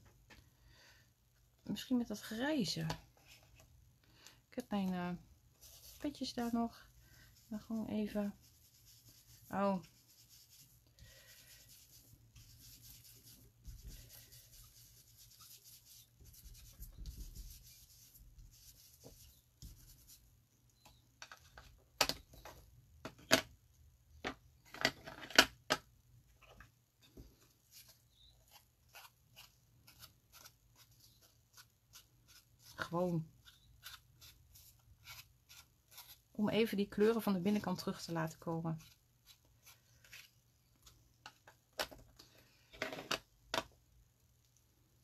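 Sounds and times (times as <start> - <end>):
foam tool rubbing on cardstock: 7.4 - 20.2.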